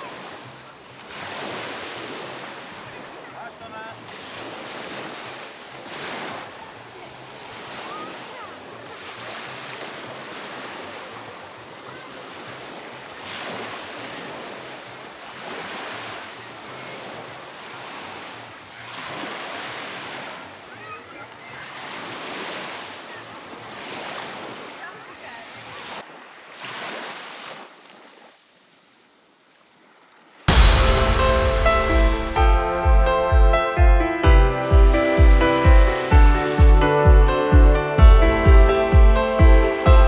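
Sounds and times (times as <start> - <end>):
faint voices of people: 0.0 - 4.9, 5.8 - 15.2, 15.8 - 26.0
sea waves breaking on a beach: 0.0 - 40.0.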